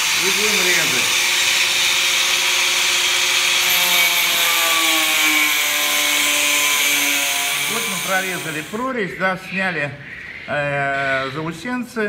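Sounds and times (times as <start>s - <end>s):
angle grinder cutting metal: 0.0s - 8.8s.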